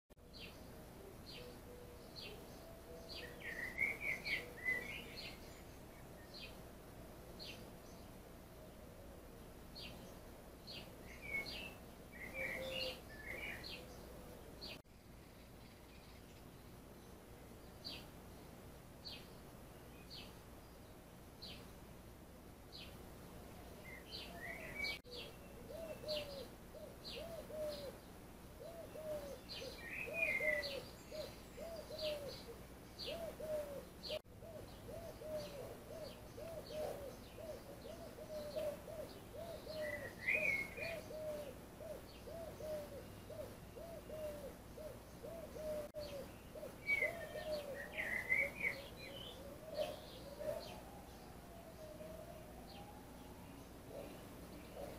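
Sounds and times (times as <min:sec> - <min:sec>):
birds chirping: 0:00.2 - 0:22.0, 0:22.6 - 0:54.9
bird warbling: 0:11.0 - 0:14.7, 0:28.6 - 0:54.9.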